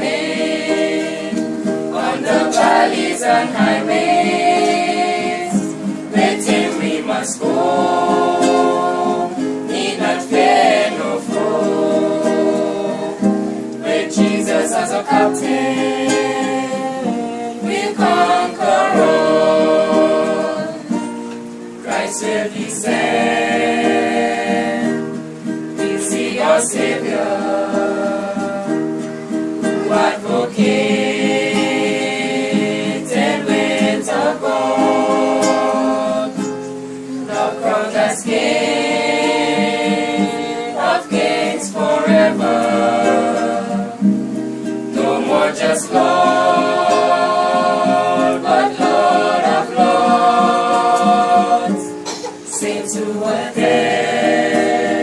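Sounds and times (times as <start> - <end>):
acoustic guitar: 0.0 - 55.0
group of people singing: 0.0 - 55.0.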